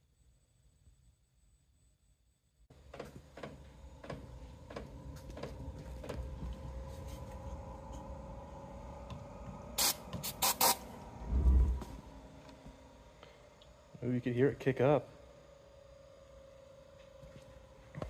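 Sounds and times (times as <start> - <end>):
heater fan humming: 2.7 - 18.0
starting fluid hissing sprays: 9.8 - 11.8.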